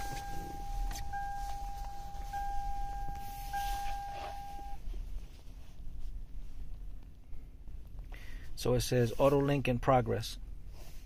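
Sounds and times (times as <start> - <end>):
dashboard warning chime: 0.0 - 4.8.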